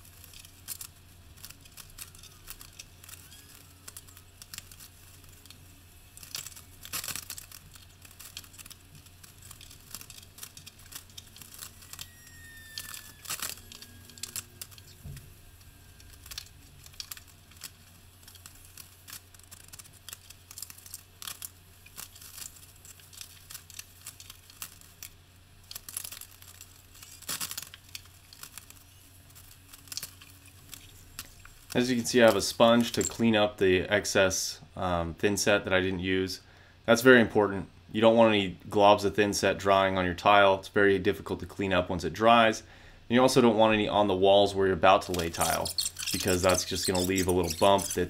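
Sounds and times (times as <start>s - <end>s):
ceramic tiles clicking and scraping: 0.0s - 15.0s, 45.0s - 48.0s.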